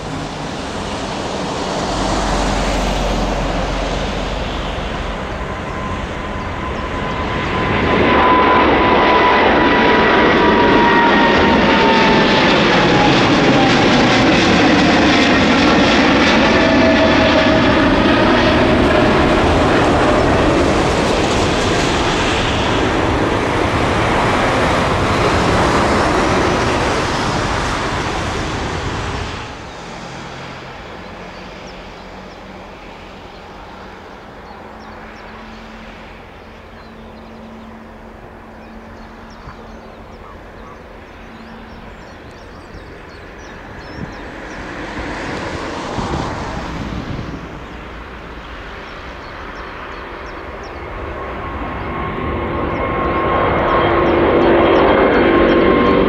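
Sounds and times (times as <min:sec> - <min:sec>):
jet engines roaring: 0:00.0 - 0:56.0.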